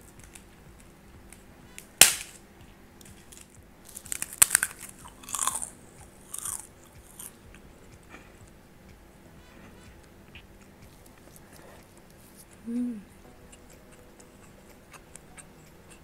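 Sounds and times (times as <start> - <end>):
cracker snapping: 0.2 - 2.4, 3.0 - 7.4
crunching cracker: 3.1 - 7.4.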